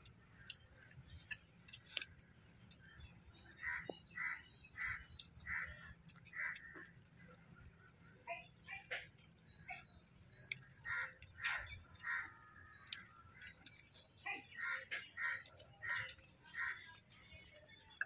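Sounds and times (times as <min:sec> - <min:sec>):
clicks of eating by hand: 0:00.0 - 0:03.0, 0:12.8 - 0:14.1
crows cawing: 0:03.6 - 0:06.8, 0:10.8 - 0:12.7.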